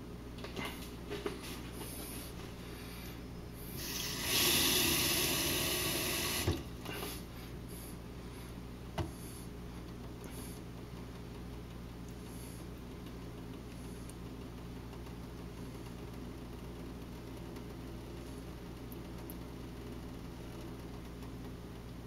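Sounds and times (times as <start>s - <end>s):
water running into sink: 3.8s - 6.9s.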